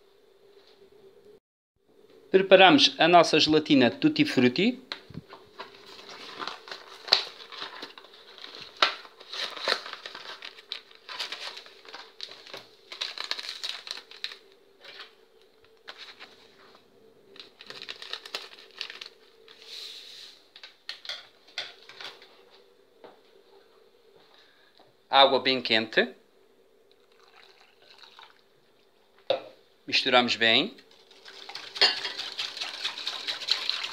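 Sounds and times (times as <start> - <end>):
paper sachet crinkling and ripping: 5.6 - 15.0, 17.4 - 19.4.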